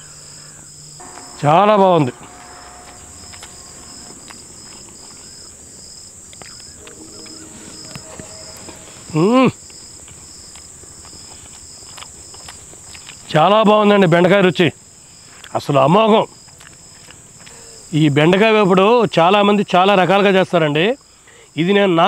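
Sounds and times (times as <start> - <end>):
crickets chirping: 0.0 - 14.2.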